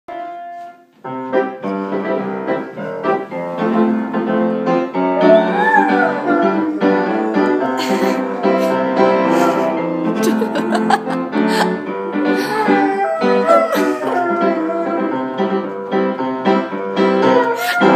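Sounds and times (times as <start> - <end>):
upright piano playing: 0.1 - 17.9
dog howling: 5.2 - 8.7, 12.3 - 15.5, 17.2 - 17.9.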